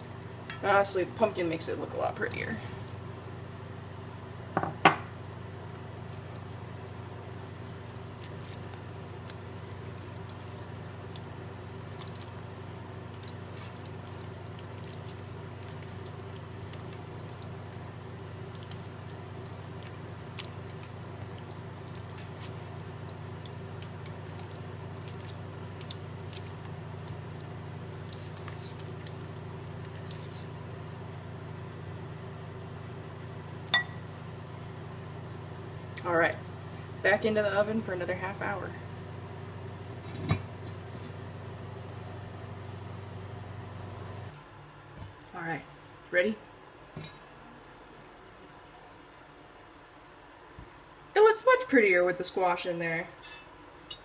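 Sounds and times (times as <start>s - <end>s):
steady low hum: 0.0s - 54.0s
wet squishing of stirred food: 5.6s - 33.4s, 47.0s - 54.0s.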